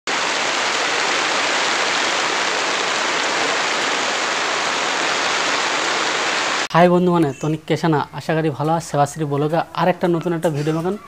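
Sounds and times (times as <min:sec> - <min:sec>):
rain on wet ground: 0:00.1 - 0:06.7.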